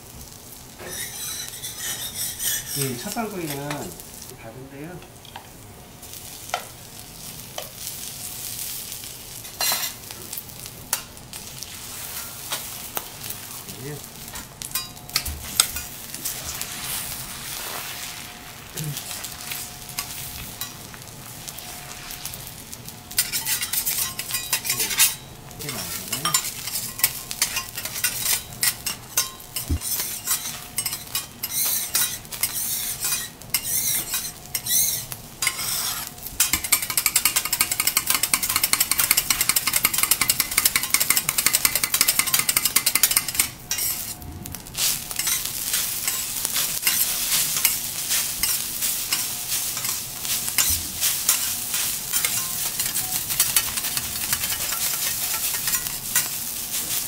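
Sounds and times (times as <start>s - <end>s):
egg sizzling on a griddle: 0.0s - 57.0s
metal spatula scraping and tapping: 0.8s - 3.9s, 23.2s - 44.1s, 45.2s - 56.4s.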